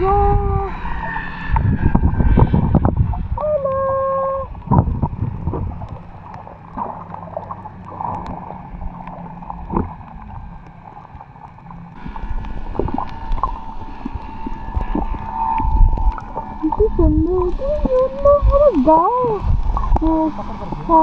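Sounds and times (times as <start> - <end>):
steady low drone: 0.0 - 21.0
underwater water sloshing: 0.7 - 21.0.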